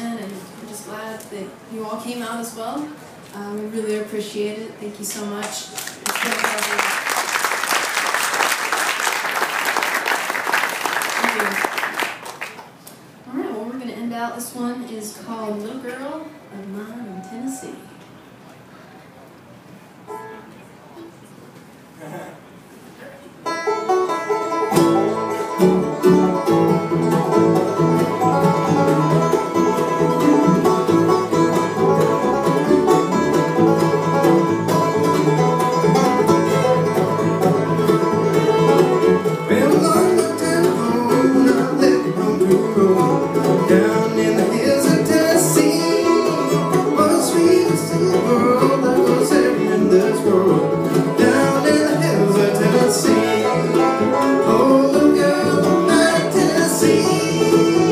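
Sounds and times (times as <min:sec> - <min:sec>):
bluegrass band playing: 0:00.0 - 0:12.4, 0:20.0 - 0:20.9, 0:23.3 - 0:57.9
banjo picking: 0:20.1 - 0:20.5, 0:23.4 - 0:57.9.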